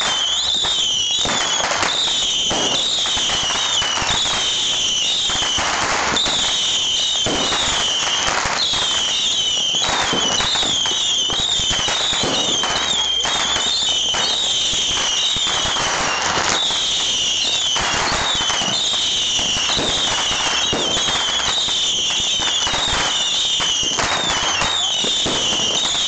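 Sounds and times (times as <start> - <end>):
bottle rockets whistling: 0.0 - 26.0.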